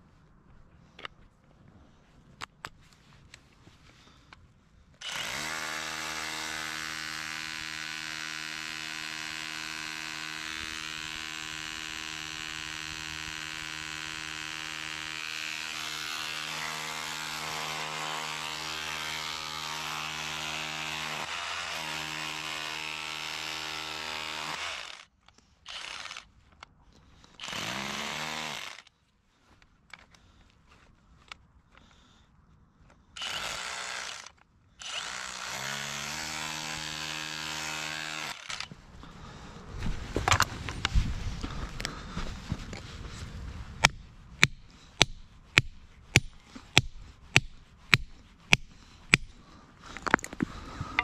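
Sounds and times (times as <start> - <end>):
small power tool motor running: 5.0 - 25.1, 25.7 - 26.3, 27.4 - 28.9, 33.2 - 38.7.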